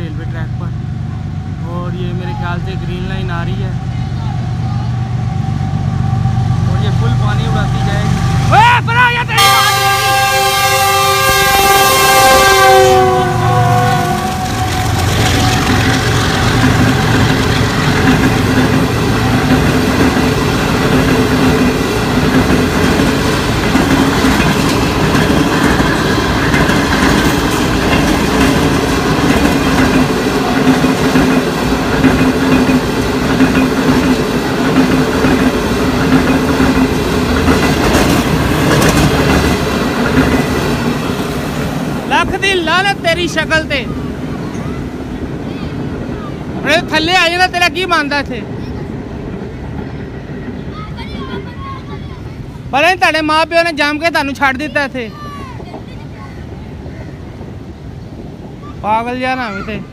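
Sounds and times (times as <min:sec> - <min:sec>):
train coaches rumbling past: 0:00.0 - 0:59.9
train horn: 0:09.4 - 0:15.5.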